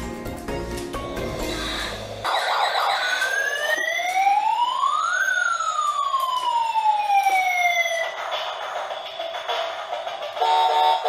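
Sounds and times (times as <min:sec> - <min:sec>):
toy siren wailing: 0:01.7 - 0:08.2, 0:10.4 - 0:11.0.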